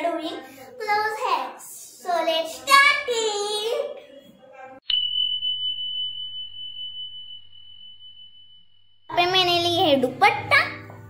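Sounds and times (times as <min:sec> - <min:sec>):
child's voice: 0:00.0 - 0:04.0, 0:09.1 - 0:10.9
high bell-like ding: 0:04.9 - 0:09.3.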